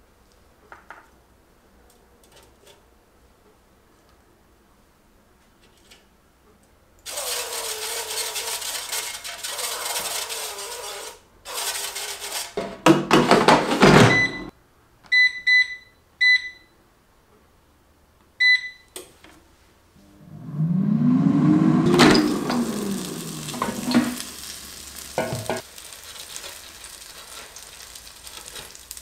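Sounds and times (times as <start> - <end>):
air fryer basket scraping rattle: 7.1 - 12.6, 21.1 - 28.8
cooking oil spray hissing: 21.9 - 29.0.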